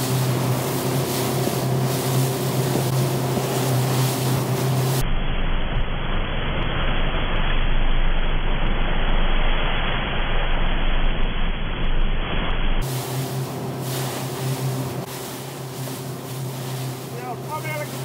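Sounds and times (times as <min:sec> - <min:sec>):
rushing water: 0:00.0 - 0:05.0, 0:12.8 - 0:18.0
wind buffeting microphone: 0:00.0 - 0:05.0
motorboat engine hum: 0:00.0 - 0:18.0.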